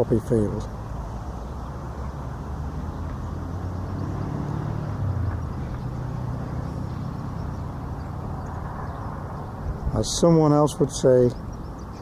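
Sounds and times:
passing vehicles rumbling: 0:00.0 - 0:12.0.

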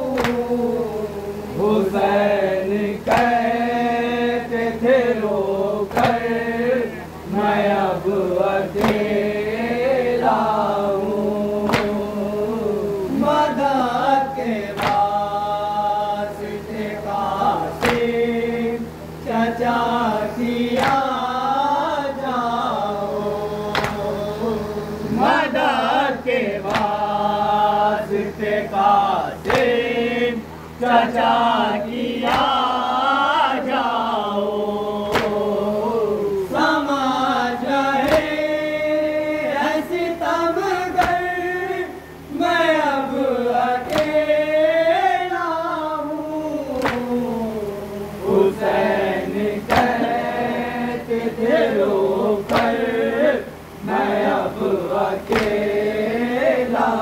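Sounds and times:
men chanting a lament: 0:00.0 - 0:57.0
hands striking chests: 0:23.7 - 0:24.1, 0:35.1 - 0:35.4, 0:46.8 - 0:47.1.

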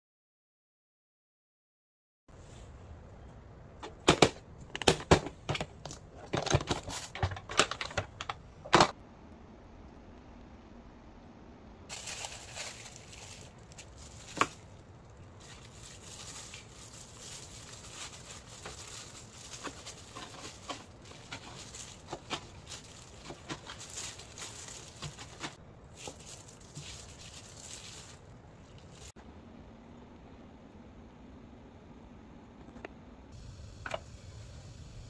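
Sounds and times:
rustling of objects being handled: 0:02.3 - 0:09.0, 0:11.9 - 0:29.2.

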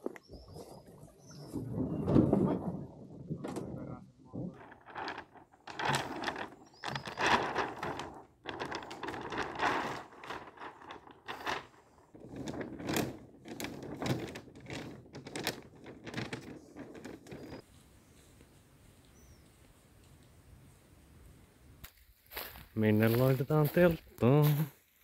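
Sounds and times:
sail and rigging rustling: 0:04.4 - 0:19.9.

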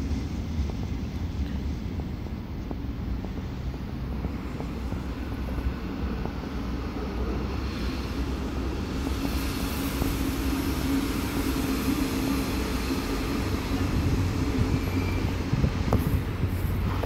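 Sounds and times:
train rumbling: 0:00.0 - 0:17.0
hiss: 0:04.4 - 0:17.0.

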